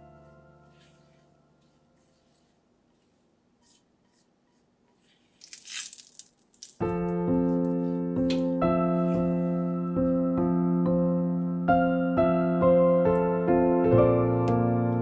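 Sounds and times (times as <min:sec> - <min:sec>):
piano chords: 0:00.0 - 0:01.8, 0:06.8 - 0:15.0.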